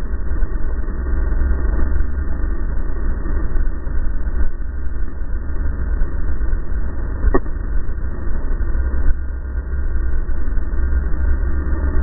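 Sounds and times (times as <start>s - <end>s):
snowmobile engine running: 0.0s - 12.0s.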